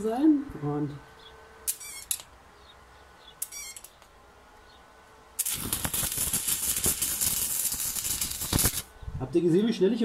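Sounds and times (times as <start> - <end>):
welding arc crackling: 1.7 - 2.4, 3.4 - 4.1, 5.4 - 8.9
short hiss: 5.4 - 8.9.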